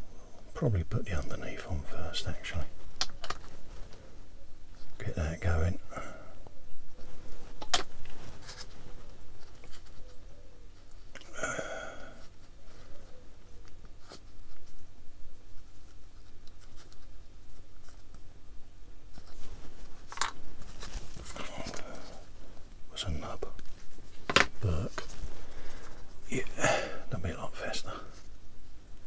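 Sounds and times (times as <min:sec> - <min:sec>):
faint scraping and rustling: 0:00.0 - 0:11.3, 0:11.9 - 0:29.0
plastic parts clicking: 0:20.1 - 0:20.4.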